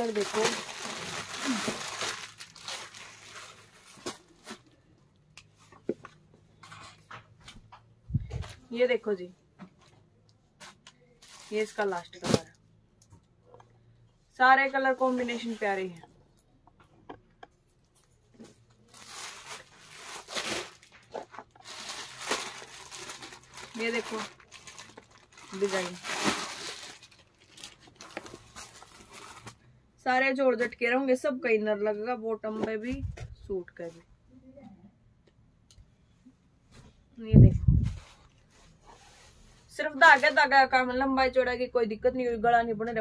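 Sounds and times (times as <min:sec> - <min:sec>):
plastic packets crinkling: 0:00.0 - 0:04.8, 0:18.7 - 0:29.6.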